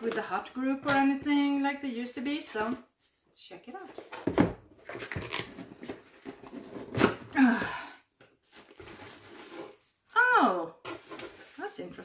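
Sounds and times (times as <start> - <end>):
cardboard box ripping: 4.8 - 7.3
rustling and scraping: 8.4 - 10.1, 10.8 - 12.0.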